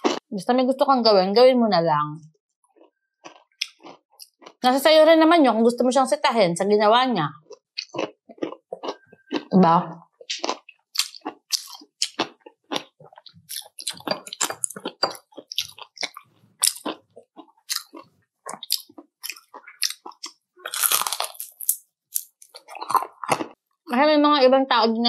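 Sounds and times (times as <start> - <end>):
person chewing crispy food: 0.0 - 0.2, 2.7 - 4.6, 7.4 - 23.6.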